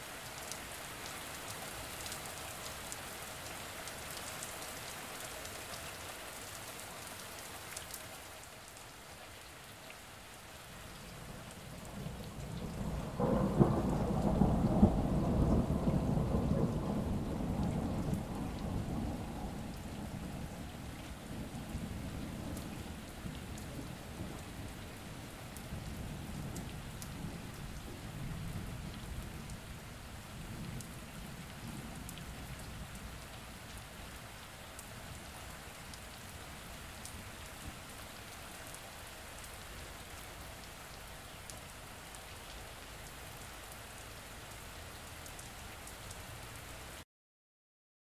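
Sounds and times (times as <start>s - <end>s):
steady rain with drop ticks: 0.0s - 47.0s
thunder rumble: 11.6s - 25.0s.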